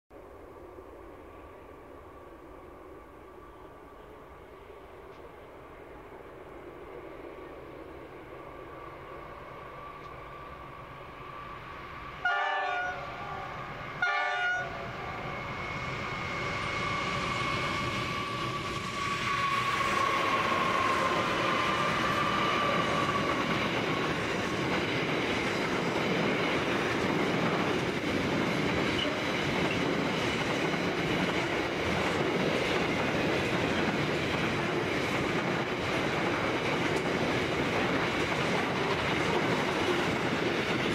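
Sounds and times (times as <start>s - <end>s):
diesel locomotive engines: 0.2s - 40.9s
train horn blasts: 12.2s - 14.8s
clickety-clack of train wheels: 15.3s - 40.9s.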